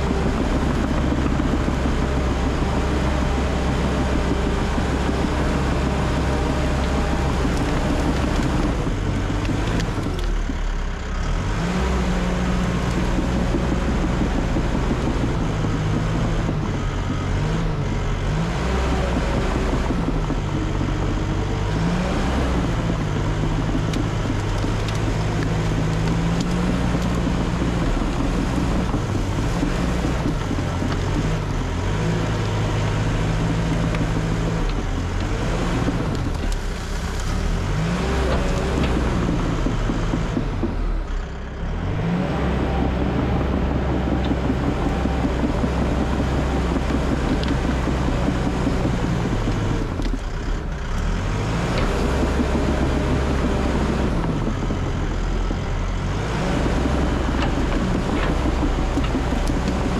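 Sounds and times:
bulldozer diesel engine under load: 0.0s - 59.9s.

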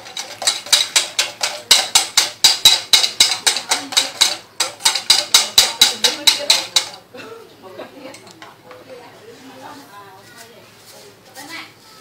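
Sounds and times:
utensil beating batter in metal bowl: 0.0s - 7.2s.

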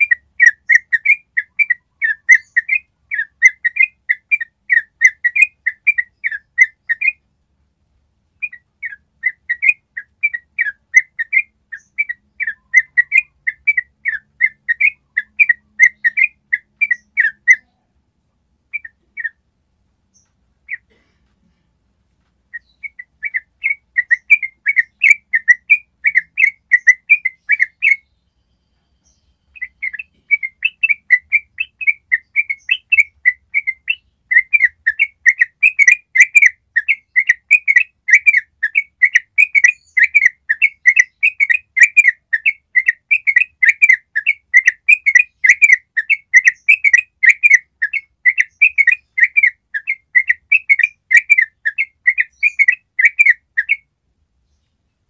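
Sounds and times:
bird singing repeated notes: 0.0s - 7.5s, 8.2s - 18.0s, 18.6s - 21.0s, 22.4s - 55.0s.

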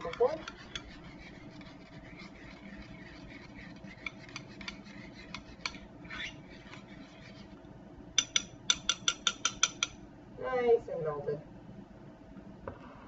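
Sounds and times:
spoon scraping ceramic bowl: 0.0s - 7.6s, 8.2s - 10.0s.

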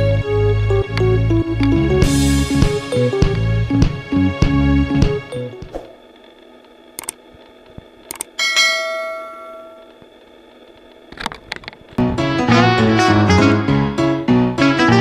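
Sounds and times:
music: 0.0s - 5.7s, 12.0s - 15.0s
faint steady hum: 0.0s - 12.2s
sharp clicks: 7.0s - 8.4s
bright bell ding: 8.4s - 9.9s.

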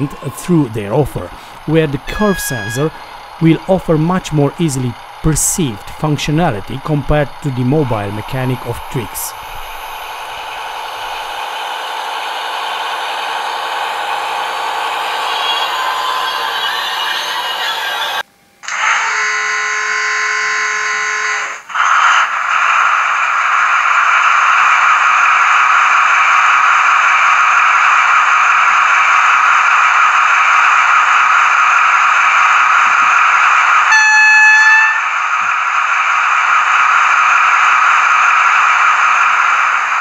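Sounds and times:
steady multi-pitch tone: 0.0s - 11.6s, 33.3s - 35.5s
diesel engine sound from speaker: 0.0s - 18.2s
locomotive horn: 2.0s - 3.1s, 18.7s - 21.6s, 33.9s - 35.2s.

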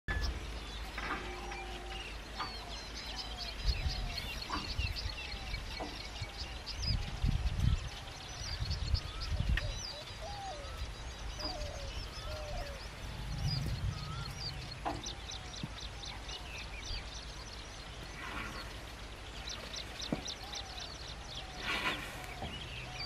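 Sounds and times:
birds chirping and whistling: 0.1s - 23.0s
low rumbling bursts: 10.6s - 23.0s.

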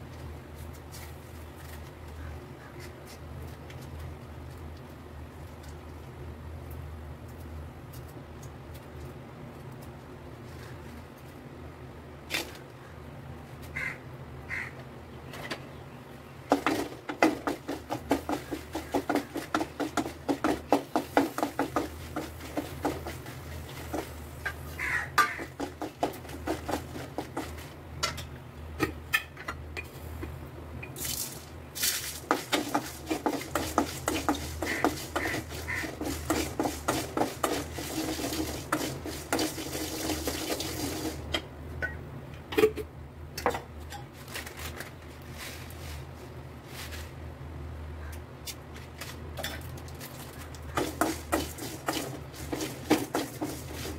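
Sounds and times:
wooden spatula scraping pan: 16.5s - 27.8s, 32.2s - 40.7s, 50.7s - 53.9s
seeds poured in: 31.0s - 33.9s.

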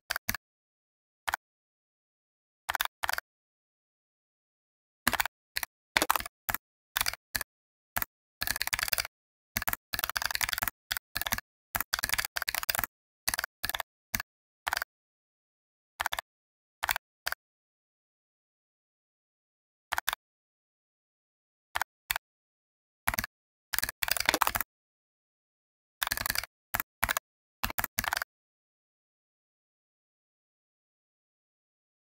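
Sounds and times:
typing on keyboard: 2.7s - 3.2s, 5.1s - 14.9s, 16.0s - 17.4s, 19.9s - 20.2s, 23.1s - 24.7s, 26.0s - 28.3s.

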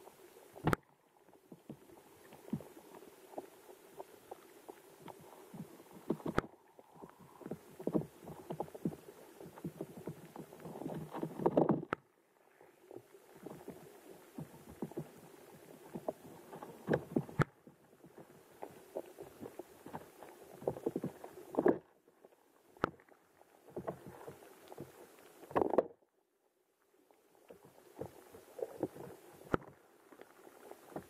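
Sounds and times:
underwater rushing noise: 0.0s - 21.8s
underwater knocks and clicks: 0.5s - 12.2s, 12.9s - 26.0s, 27.5s - 31.0s.

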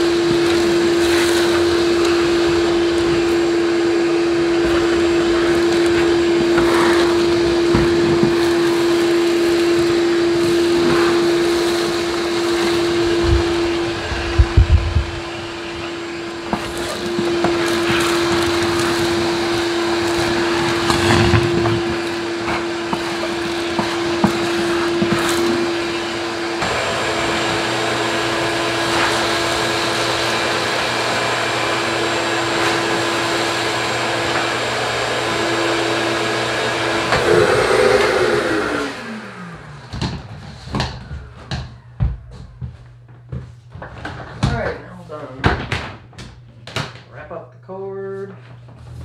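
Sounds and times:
vacuum motor winding down: 0.0s - 42.0s
shop vacuum running: 0.0s - 49.0s.

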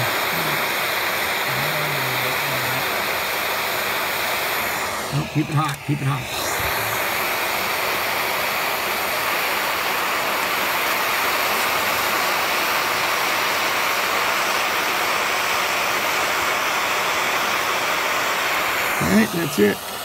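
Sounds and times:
propane torch hissing: 0.0s - 20.0s.

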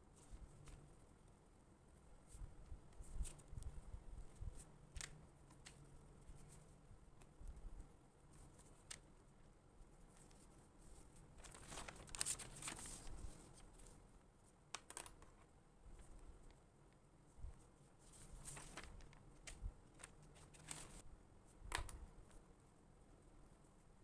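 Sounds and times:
paper rustling and scraping: 10.2s - 14.0s, 18.0s - 21.0s.

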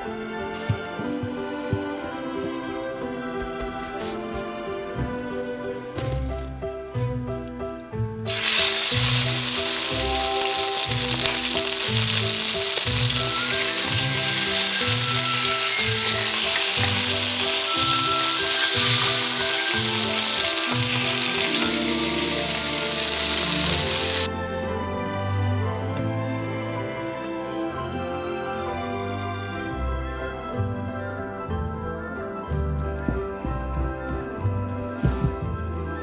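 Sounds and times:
meat sizzling in hot oil: 8.3s - 24.3s.

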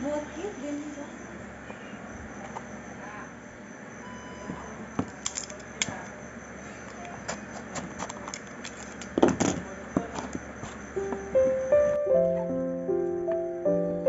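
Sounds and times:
soft piano music: 10.9s - 14.0s.

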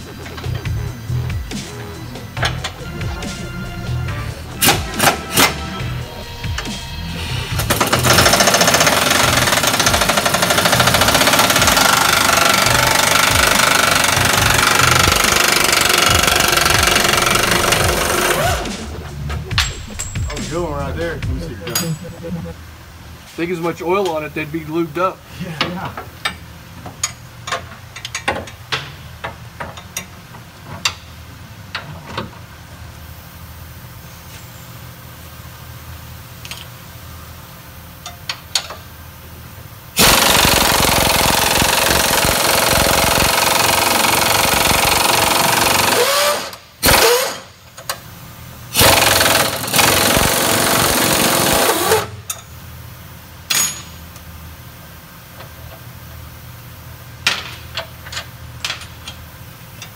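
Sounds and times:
impact wrench hammering: 7.6s - 20.6s, 40.0s - 47.4s, 48.8s - 52.4s
metal tools clinking: 19.5s - 20.5s, 53.5s - 54.0s.

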